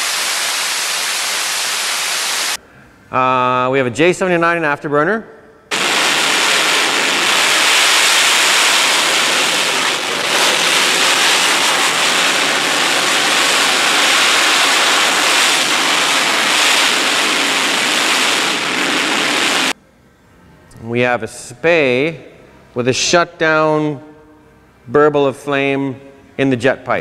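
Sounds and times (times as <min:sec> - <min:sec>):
jet engine afterburner roar: 0:05.7 - 0:19.8.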